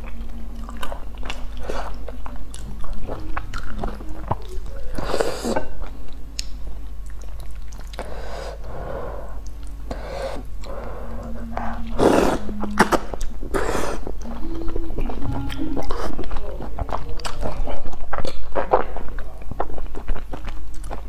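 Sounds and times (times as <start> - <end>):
person slurping noodles: 5.0 - 5.8, 9.9 - 14.2.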